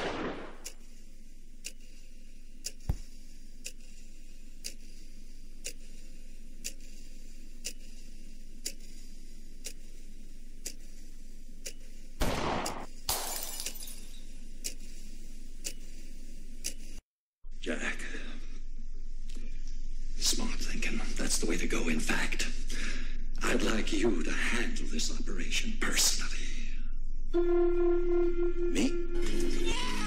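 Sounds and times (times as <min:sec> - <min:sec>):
low steady hum: 0:00.0 - 0:29.4
clock ticking: 0:00.6 - 0:12.0, 0:16.6 - 0:17.0
glass breaking: 0:13.1 - 0:14.1.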